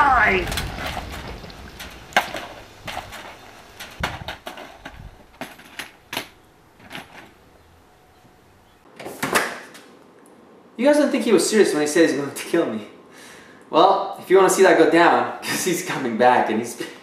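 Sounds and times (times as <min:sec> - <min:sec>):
door shutting: 0:00.3 - 0:07.4.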